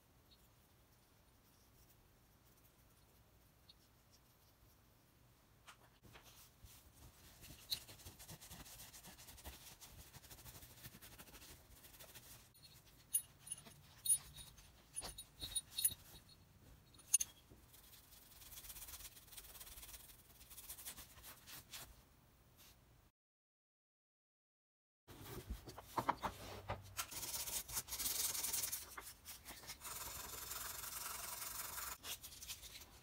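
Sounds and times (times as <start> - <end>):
light metallic clinks: 12.6 - 17.4.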